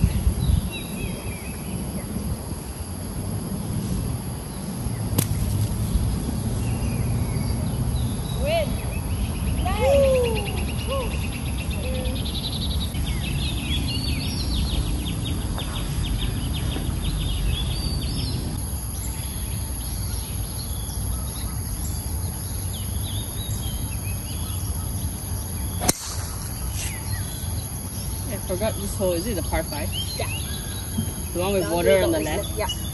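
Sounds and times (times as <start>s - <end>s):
low outdoor rumble: 0.0s - 19.5s, 23.2s - 31.8s
birds chirping: 4.4s - 32.9s
golf driver striking ball: 5.2s - 5.7s, 25.8s - 27.4s.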